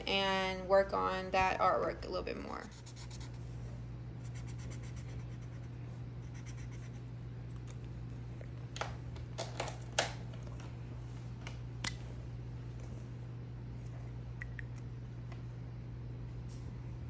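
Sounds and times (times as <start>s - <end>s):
marker scratching on paper: 2.6s - 3.4s, 4.2s - 7.0s.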